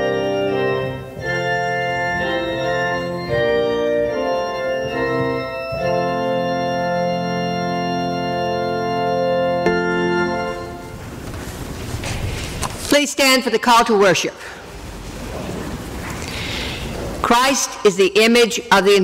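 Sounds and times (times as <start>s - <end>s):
organ playing slow chords: 0.0s - 11.8s.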